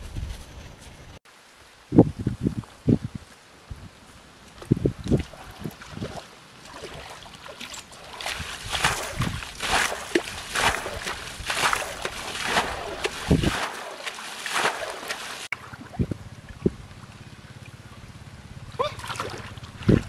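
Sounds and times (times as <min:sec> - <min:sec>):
water sloshing: 0:04.6 - 0:18.0, 0:18.7 - 0:20.0
water splashing from basin: 0:05.1 - 0:16.1, 0:18.8 - 0:20.0.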